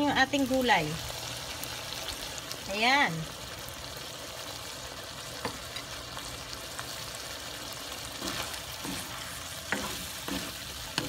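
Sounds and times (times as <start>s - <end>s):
vegetables sizzling in a wok: 0.0s - 11.0s
spatula scraping a pan: 8.1s - 11.0s.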